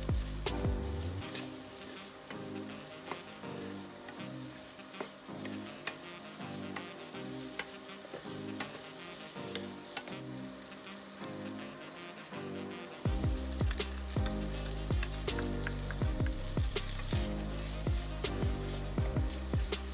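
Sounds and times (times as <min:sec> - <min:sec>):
corn kernels sizzling in a pan: 0:00.0 - 0:19.9
soft background music: 0:00.0 - 0:19.9
spatula scraping a pan: 0:01.2 - 0:10.3.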